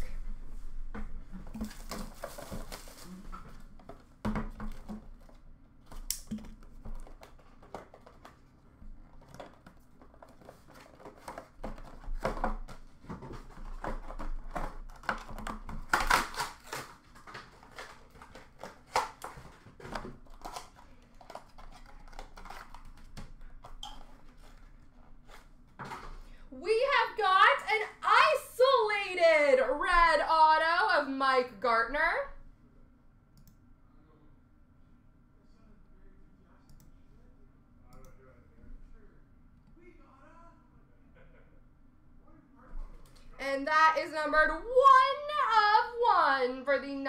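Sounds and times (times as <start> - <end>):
plastic wrap crinkling: 6.6 - 25.5.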